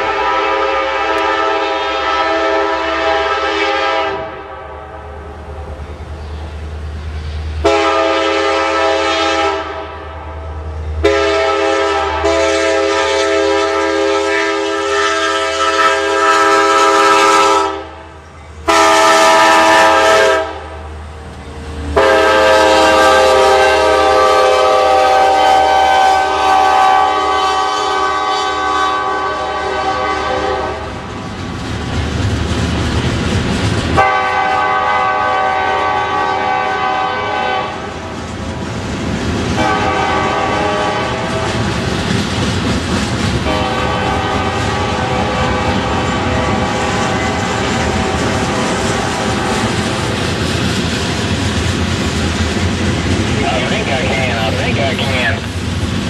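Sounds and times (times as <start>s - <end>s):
locomotive air horn blasts: 0.0s - 4.4s, 7.6s - 10.0s, 11.0s - 18.0s, 18.7s - 20.7s, 22.0s - 30.8s, 34.0s - 37.8s, 39.6s - 41.5s, 43.4s - 48.2s
train rumble: 0.0s - 56.0s.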